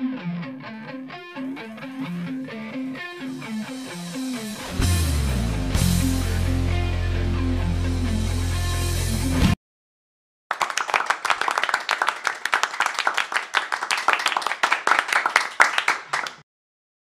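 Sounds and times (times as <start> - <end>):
group hand clapping: 10.5 - 16.4.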